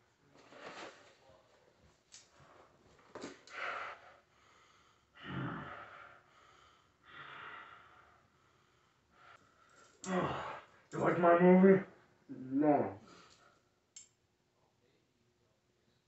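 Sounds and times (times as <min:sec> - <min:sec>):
soft breathing exhalations: 0:02.3 - 0:10.8.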